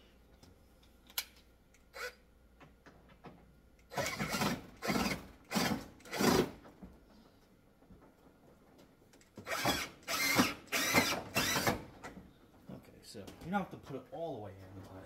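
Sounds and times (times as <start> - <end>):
cordless drill driving a screw: 1.9 - 2.2, 3.9 - 6.5, 9.4 - 11.9.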